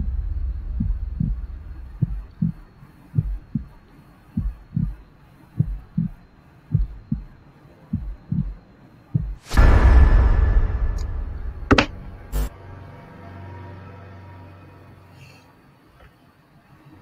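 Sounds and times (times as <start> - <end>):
loud ringing crash: 0.0 - 2.4, 9.5 - 13.0
scary music: 0.0 - 2.7, 9.5 - 14.8
heartbeat thumps: 0.0 - 3.8, 4.4 - 12.5.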